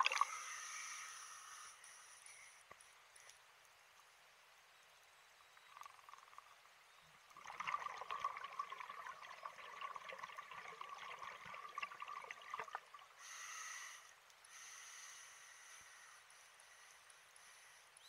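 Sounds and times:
underwater breath bubbling: 7.4s - 17.9s.

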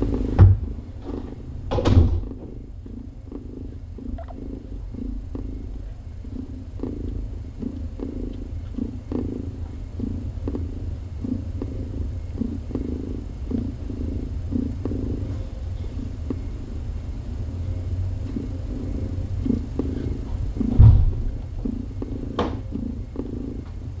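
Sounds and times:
cat purring: 0.0s - 24.0s
loud thump: 20.6s - 21.3s.

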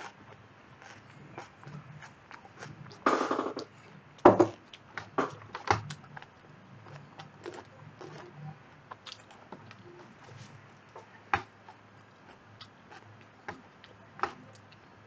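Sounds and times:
faint low hum: 0.0s - 15.0s.

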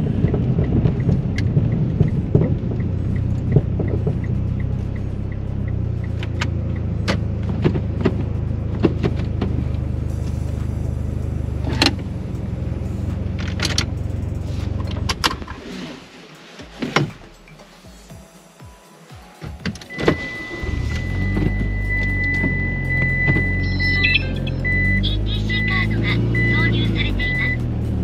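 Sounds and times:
scattered clicks and knocks: 0.0s - 9.5s
car engine idling: 0.0s - 18.2s, 19.4s - 28.0s.

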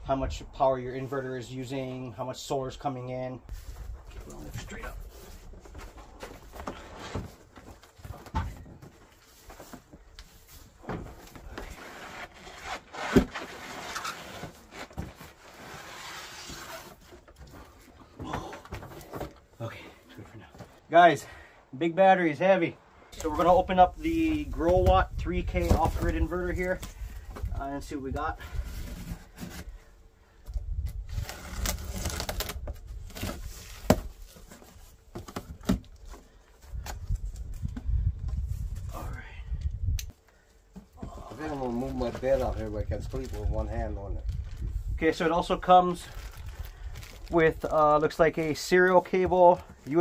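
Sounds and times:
cardboard box rustling and scraping: 3.6s - 17.9s, 28.4s - 29.8s
packaging rubbing and scraping: 11.4s - 17.3s, 31.1s - 35.0s.

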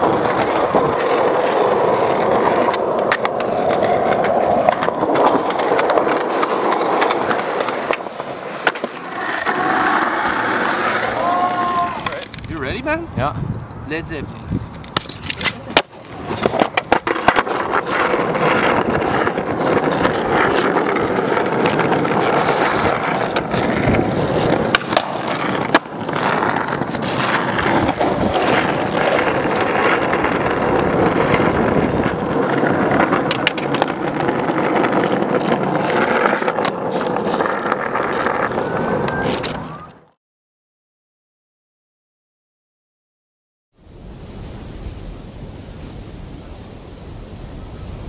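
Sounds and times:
skateboard clacking: 0.0s - 12.6s, 14.6s - 40.1s
skateboard wheels rolling on asphalt: 0.0s - 40.2s.

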